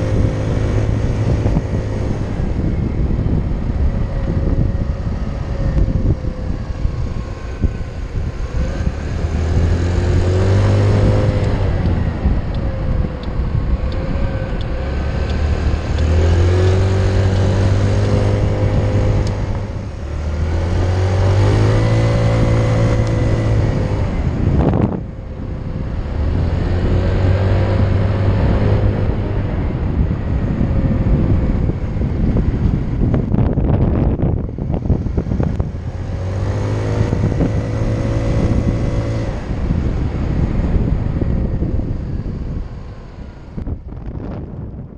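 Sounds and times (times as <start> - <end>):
motor scooter engine revving: 0.0 - 44.4.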